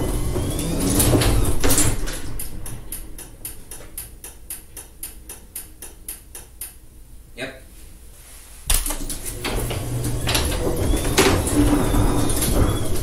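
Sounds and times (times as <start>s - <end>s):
garage door slamming: 0.0s - 5.3s, 8.7s - 13.0s
garage door rumbling and rattling: 0.0s - 6.6s, 8.7s - 13.0s.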